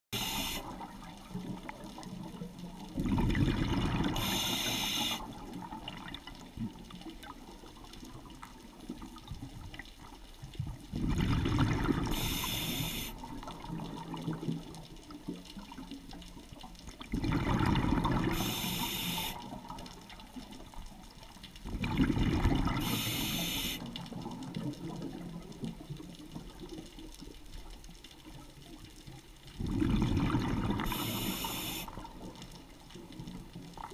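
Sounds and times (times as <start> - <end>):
quiet underwater hum: 0.1 - 33.9
exhaled bubbles rushing: 0.2 - 6.8, 10.9 - 14.9, 17.0 - 19.7, 21.7 - 25.5, 29.6 - 32.3.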